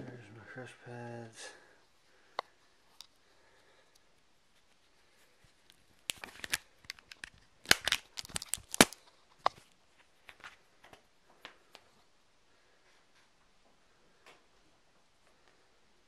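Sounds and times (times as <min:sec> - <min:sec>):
camera handling clicks and rustles: 0:05.6 - 0:09.7.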